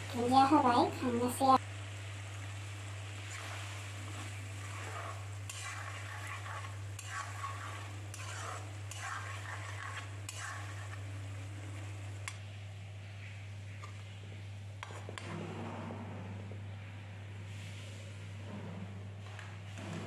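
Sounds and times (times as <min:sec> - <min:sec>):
frying sizzle: 0:00.0 - 0:15.3
steady low hum: 0:00.0 - 0:20.0
metal spatula scraping a pan: 0:03.2 - 0:11.2, 0:14.8 - 0:16.2.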